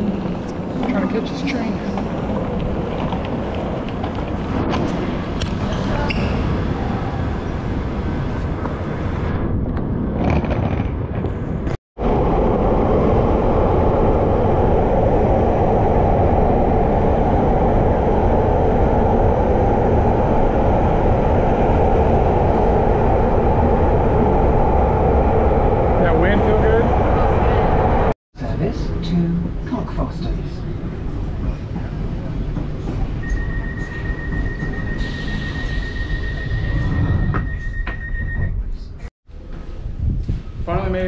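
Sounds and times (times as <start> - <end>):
underground train on rails: 0.0 - 41.0.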